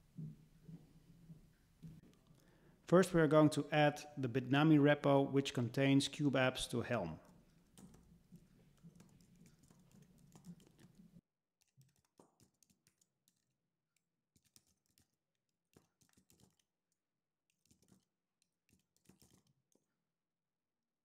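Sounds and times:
typing on a keyboard: 7.7s - 13.5s, 14.4s - 15.1s, 15.7s - 16.7s, 17.5s - 18.1s, 18.7s - 19.6s.

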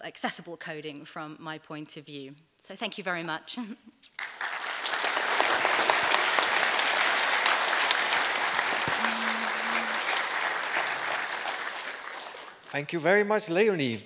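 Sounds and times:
audience applauding: 4.2s - 13.1s.

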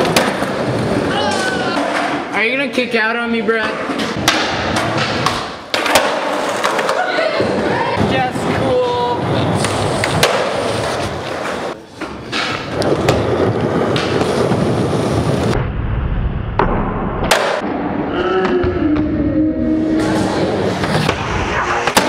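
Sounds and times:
skateboard wheels rolling on concrete: 0.0s - 15.6s
skateboard clacking on ground: 4.2s - 7.3s.

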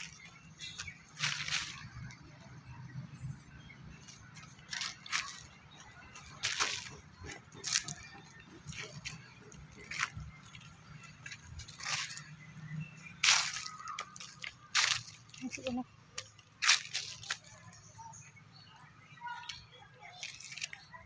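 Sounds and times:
handling crackles and rustles: 0.0s - 2.2s, 4.0s - 12.5s, 13.1s - 17.7s, 20.0s - 21.0s.

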